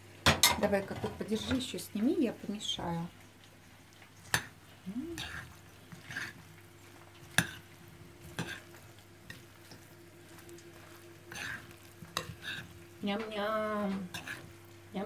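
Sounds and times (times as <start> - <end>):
soft wet rustle of salad: 2.1 - 13.1.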